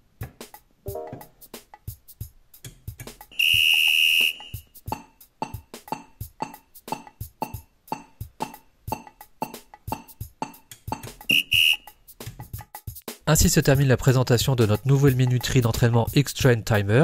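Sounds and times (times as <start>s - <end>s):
long high timer beep: 11.3s - 11.8s
short timer beeps: 11.3s - 11.8s.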